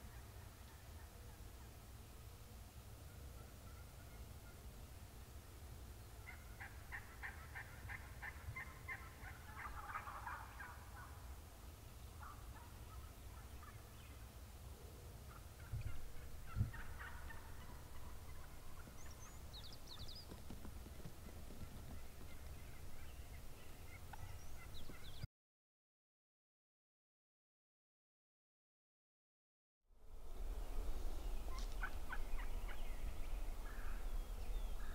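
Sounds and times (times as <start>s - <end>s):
turkey gobbling: 0.0s - 1.8s, 3.4s - 4.6s, 6.2s - 11.3s, 12.2s - 14.3s, 15.3s - 20.3s, 20.9s - 25.2s, 31.5s - 34.9s.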